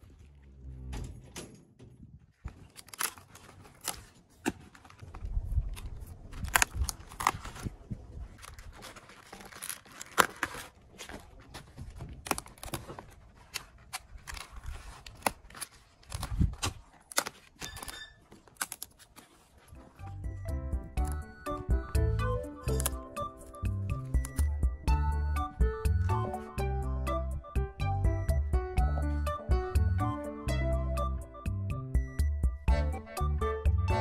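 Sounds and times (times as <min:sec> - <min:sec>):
cabbage leaves crackling and squeaking: 0:02.3 - 0:20.4, 0:21.0 - 0:24.6.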